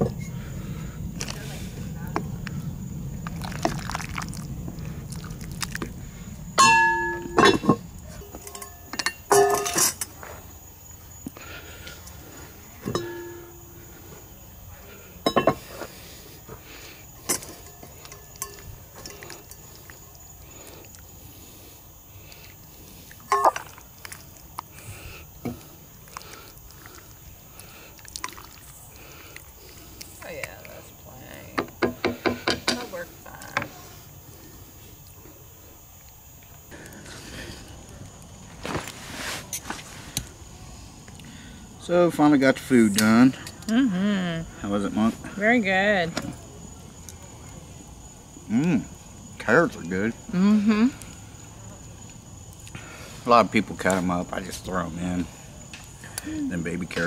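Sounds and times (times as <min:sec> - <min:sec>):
stew sloshing: 0:03.3 - 0:04.5, 0:26.0 - 0:29.1
metal clanking on pot: 0:06.6 - 0:10.1, 0:12.8 - 0:13.7, 0:15.2 - 0:15.6, 0:17.2 - 0:19.6.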